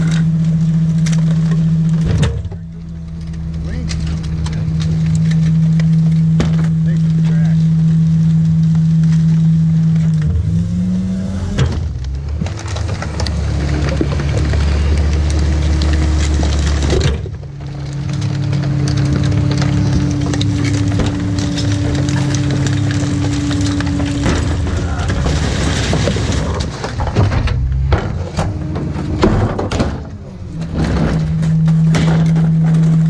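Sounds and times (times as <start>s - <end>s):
cardboard and plastic crunching: 0.0s - 33.0s
garbage truck hydraulic hum: 7.8s - 33.0s.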